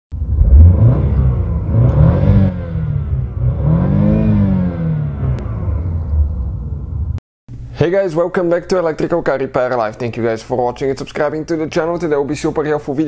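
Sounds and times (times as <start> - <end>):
car engine revving: 0.2 - 7.2.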